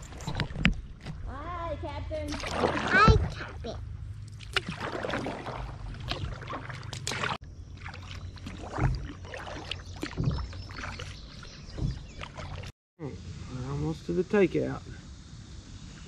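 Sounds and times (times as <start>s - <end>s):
paddle strokes splashing in water: 2.3s - 3.6s, 4.3s - 12.7s.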